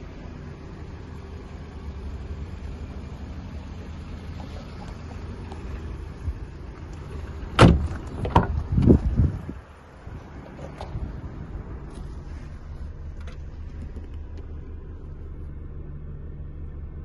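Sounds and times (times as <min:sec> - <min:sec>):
microphone handling rumble: 0:05.6 - 0:14.7.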